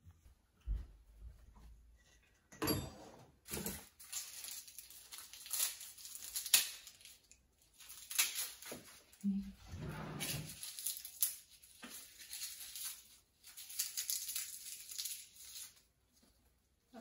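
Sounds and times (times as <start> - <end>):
onion skin crackling and tearing: 3.9 - 9.2, 10.6 - 15.9.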